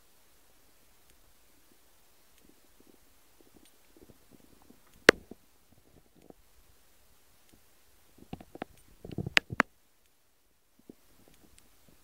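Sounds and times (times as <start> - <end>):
light taps and clicks: 8.2 - 10.2.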